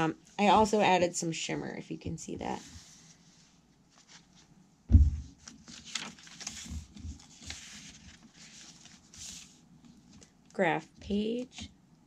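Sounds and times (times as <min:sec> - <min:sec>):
paper pages rustling: 0:02.6 - 0:04.5, 0:05.2 - 0:10.3
low thump: 0:04.9 - 0:05.3.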